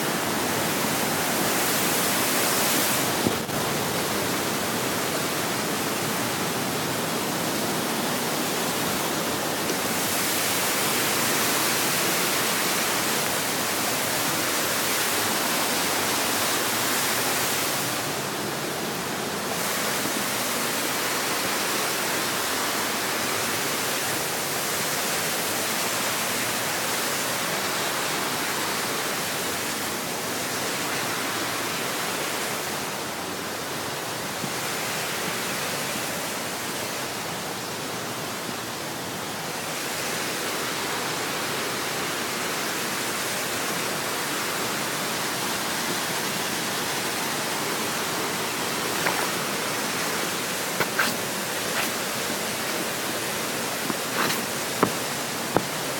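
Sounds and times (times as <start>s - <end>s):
waterfall rushing: 0.0s - 55.9s.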